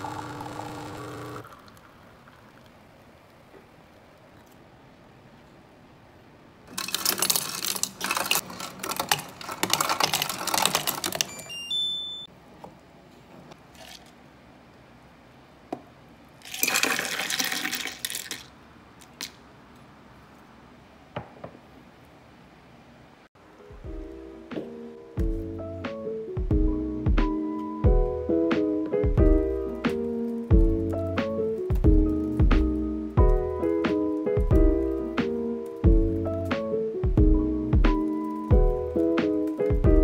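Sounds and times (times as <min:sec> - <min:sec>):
coffee machine pump running: 0:00.0 - 0:02.4
ice cubes clinking: 0:06.7 - 0:11.4, 0:13.8 - 0:14.2, 0:16.4 - 0:18.5.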